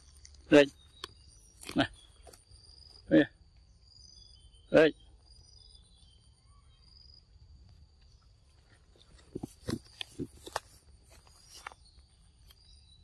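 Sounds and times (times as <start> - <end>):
hands and feet scraping bark: 0.0 - 3.2, 7.9 - 12.8
faint insect hum: 0.0 - 13.0.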